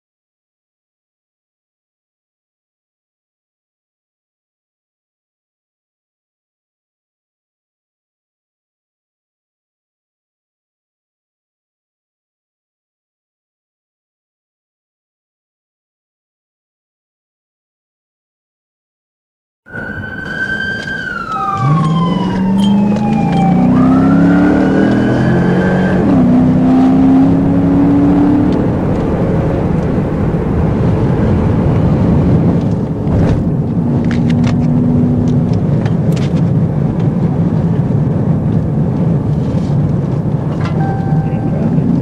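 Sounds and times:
police siren wailing: 19.7 - 27.8
car engine accelerating: 19.7 - 42.0
engine and road noise inside car: 19.7 - 42.0.

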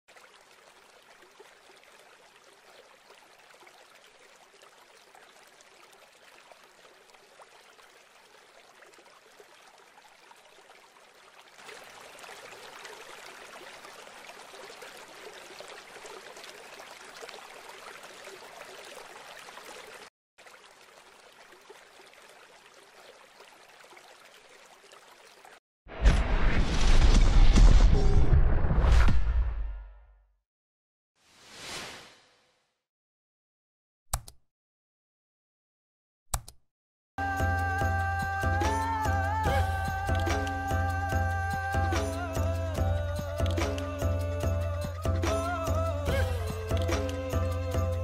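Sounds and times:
running water rushing: 0.1 - 25.6, 37.2 - 48.0.

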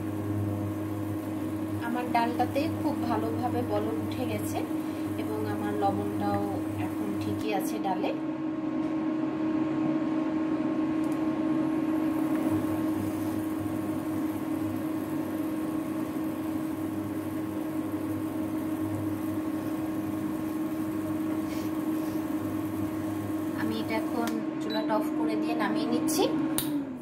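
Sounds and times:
thick dal boiling in pot: 0.0 - 7.8, 11.6 - 24.2
electric cooktop humming: 0.0 - 27.0.

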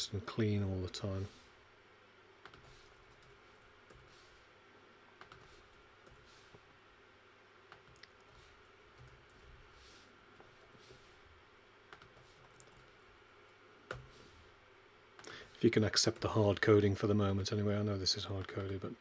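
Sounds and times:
low room hiss: 0.0 - 19.0
keyboard typing: 2.4 - 4.1, 5.2 - 6.2, 7.7 - 9.6, 11.9 - 13.0, 13.9 - 14.2.

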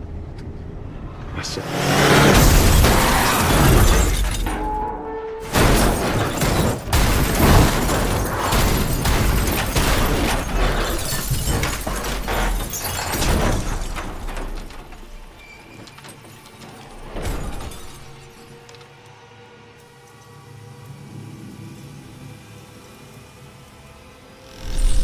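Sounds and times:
glass shattering: 2.3 - 4.8, 5.4 - 18.5
music: 15.2 - 25.0.

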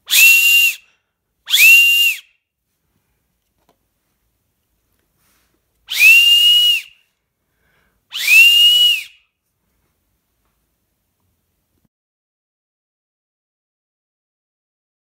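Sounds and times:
high breathy whistle blasts: 0.0 - 2.3, 5.9 - 9.3.

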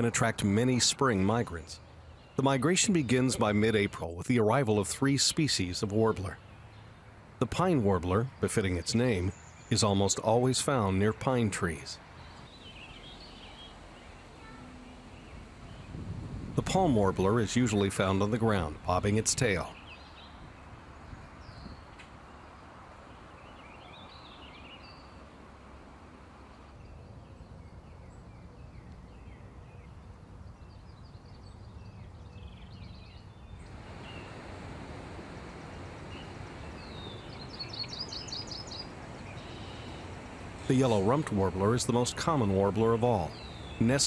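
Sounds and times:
songbirds chirping: 0.0 - 44.0
bird trill: 35.2 - 44.0.

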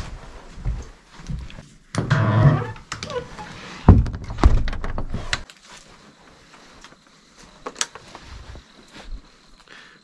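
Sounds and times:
door squeak: 2.0 - 3.9
door thuds and knocking: 3.9 - 5.3.

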